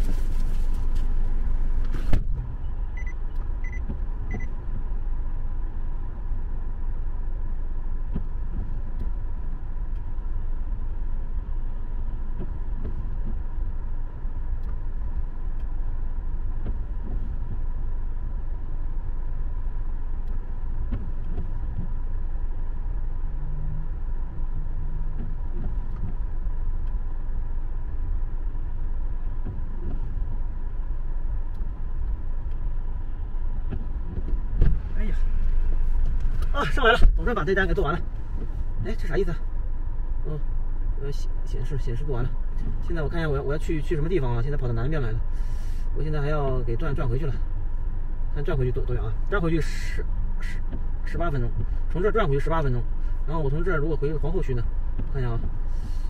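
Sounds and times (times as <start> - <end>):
car engine idling: 0.0 - 56.0
car door shutting: 0.8 - 2.6, 33.6 - 38.6
short beeps: 3.0 - 4.5.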